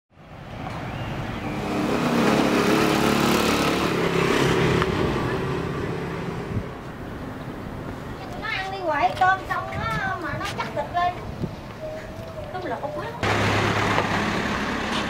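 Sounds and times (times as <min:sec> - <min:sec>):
motorbike passing by: 0:00.4 - 0:07.4, 0:13.1 - 0:15.0.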